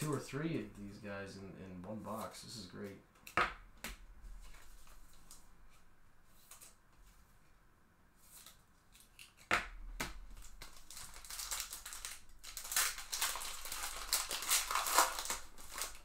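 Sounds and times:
foil wrapper crinkling and tearing: 10.3 - 16.0.

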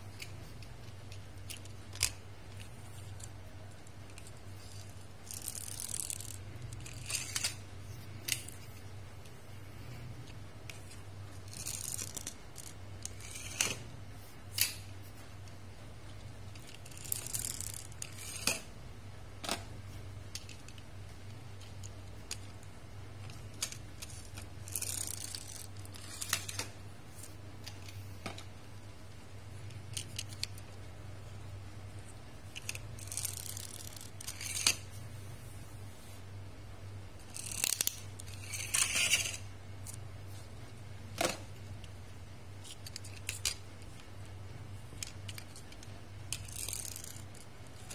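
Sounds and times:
plastic toy cars clicking: 0.1 - 7.6, 10.6 - 13.9, 16.5 - 18.7, 23.2 - 26.7, 32.5 - 34.8, 37.2 - 40.0, 42.6 - 44.1, 44.9 - 47.9
toy car wheels whirring: 1.0 - 7.6, 10.7 - 13.9, 16.5 - 18.7, 23.5 - 26.7, 32.5 - 34.8, 37.2 - 40.0, 45.0 - 47.9.

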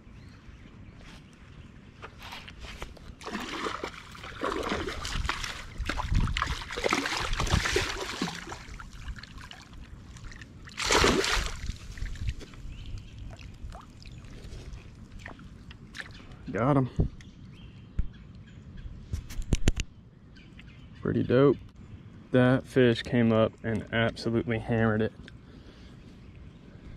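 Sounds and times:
fish splashing in water: 3.2 - 12.4.

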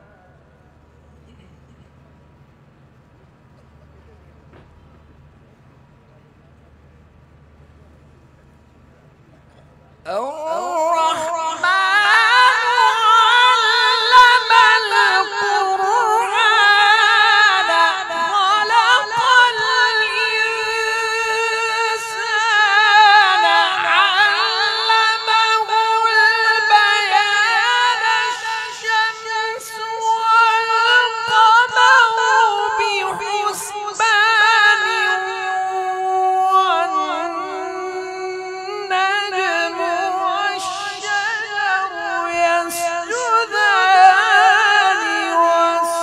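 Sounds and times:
man reciting melodically into microphone: 10.1 - 46.0.

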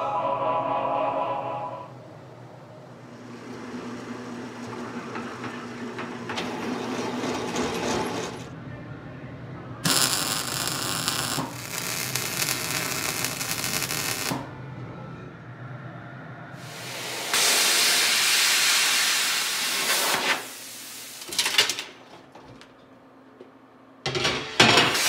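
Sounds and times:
steady hum: 8.5 - 17.4
welding arc hissing: 9.8 - 14.5, 16.6 - 21.5.

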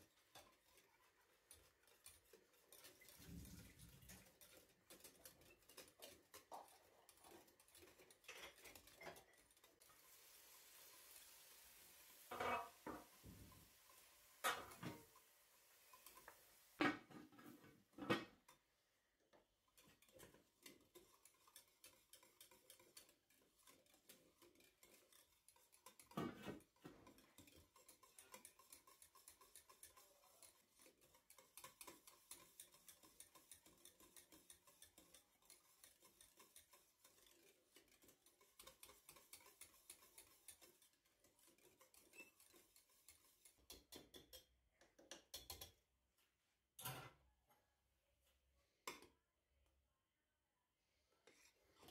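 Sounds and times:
wire whisk ticking against pan: 0.0 - 10.0, 13.4 - 16.4, 18.2 - 45.8.

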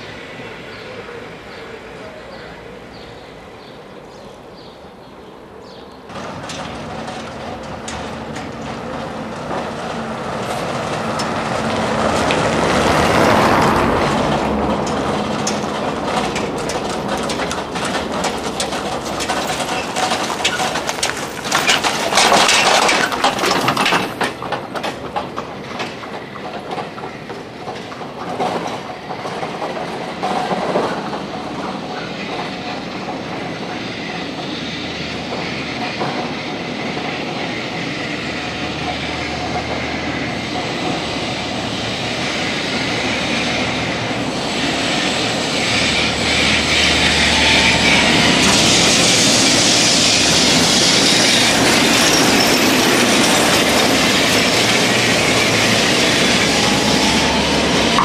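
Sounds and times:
street noise: 0.0 - 58.0
horse-drawn cart clattering: 6.1 - 33.8.

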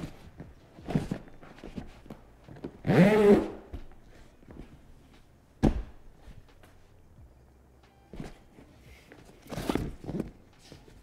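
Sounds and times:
zipper squeaking rasp: 2.8 - 3.6.

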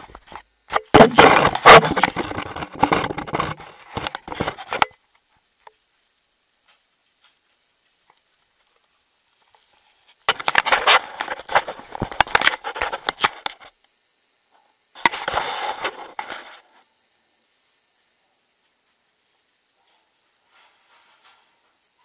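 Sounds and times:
rustling handling noise: 0.0 - 4.9.

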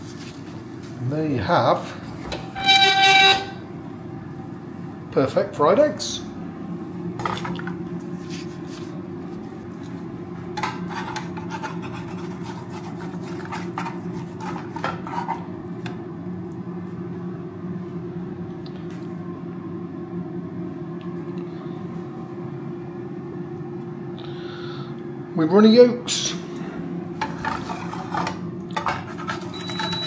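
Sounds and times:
steady low hum: 0.0 - 30.0
metal spatula scraping frying pan: 2.5 - 3.6, 27.2 - 30.0.

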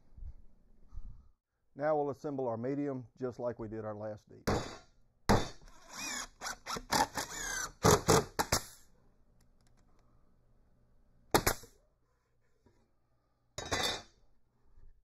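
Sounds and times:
cordless drill whining: 5.7 - 8.2.

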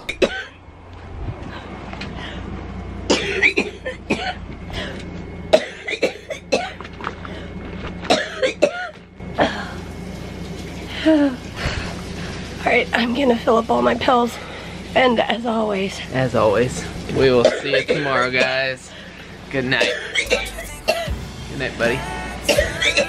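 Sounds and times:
woman coughing: 0.1 - 0.6, 3.1 - 6.8, 8.1 - 9.6, 17.4 - 18.6, 19.8 - 21.1, 22.5 - 23.0.

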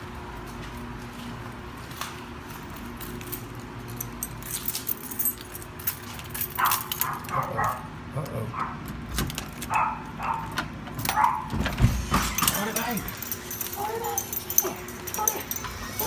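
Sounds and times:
keys jangling: 2.5 - 7.9, 9.3 - 11.4, 12.0 - 16.0
key in deadbolt: 3.0 - 7.8, 10.5 - 16.0
dog crying excitedly: 6.6 - 8.8, 12.6 - 16.0.

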